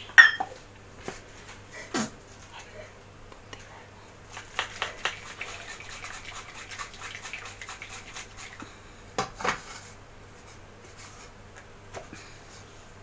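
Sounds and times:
jar rattling when shaken: 4.4s - 8.6s.

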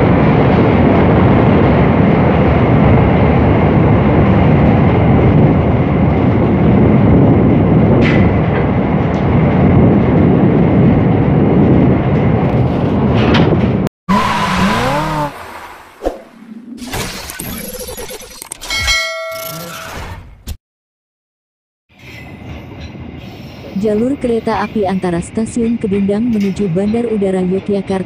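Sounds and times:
train rumbling on track: 0.0s - 15.8s, 21.9s - 28.0s
sliding electronic sound effect: 16.8s - 20.2s.

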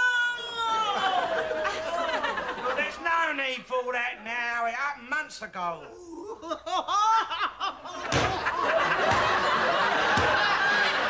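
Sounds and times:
studio audience laughing: 1.0s - 3.0s, 6.4s - 11.0s
woman wailing cry: 6.0s - 7.6s.

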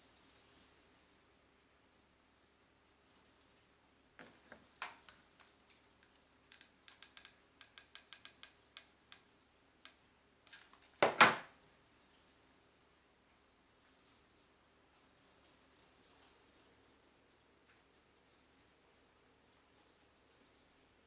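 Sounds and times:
glue gun clattering on wooden table: 10.5s - 11.5s.

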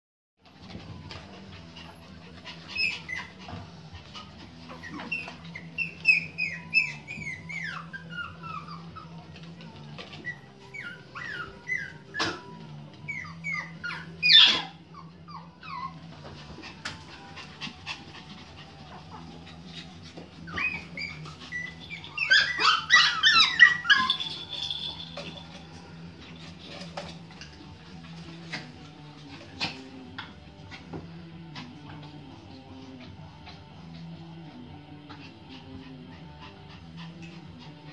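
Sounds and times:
puppies yipping and whining: 0.6s - 37.9s
puppy yelping: 2.5s - 3.4s, 4.2s - 9.2s, 10.2s - 16.0s, 20.4s - 25.0s.

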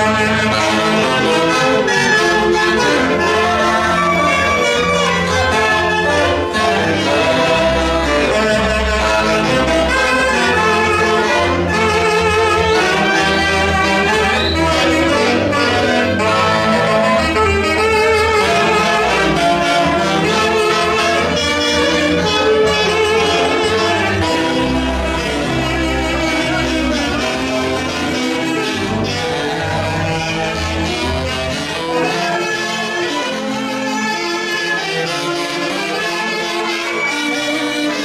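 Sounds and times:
brass music: 0.0s - 38.0s.

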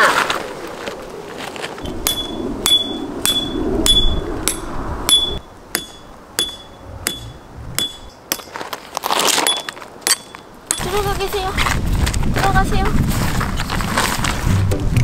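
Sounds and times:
hammer striking metal tent peg: 2.1s - 8.5s.

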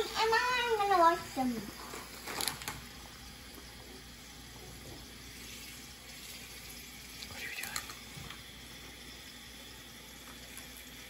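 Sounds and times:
faucet filling metal bowl: 3.5s - 11.0s.

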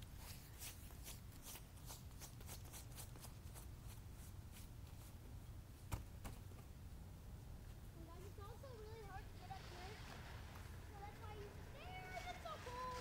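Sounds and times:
footsteps crunching in snow: 9.6s - 13.0s.

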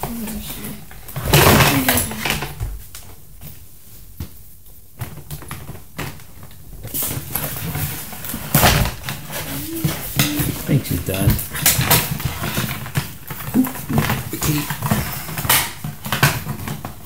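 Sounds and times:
cardboard and plastic rustling: 0.0s - 17.0s.

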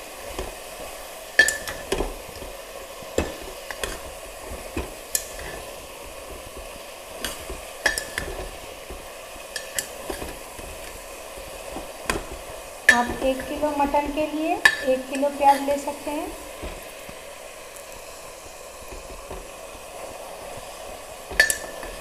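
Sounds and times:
onions sizzling in hot oil: 0.0s - 22.0s
spatula scraping metal pot: 3.1s - 17.1s.

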